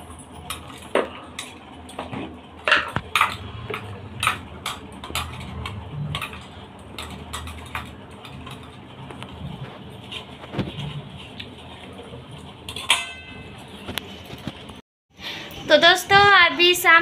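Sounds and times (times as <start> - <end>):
spoons clinking on metal plates: 2.6 - 8.8, 12.6 - 13.8.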